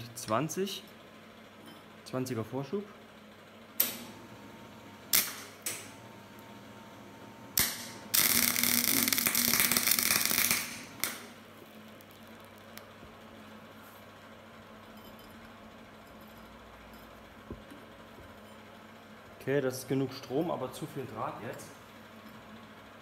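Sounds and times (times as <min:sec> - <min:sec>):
welding arc crackling: 0:05.1 - 0:06.5, 0:07.5 - 0:12.7.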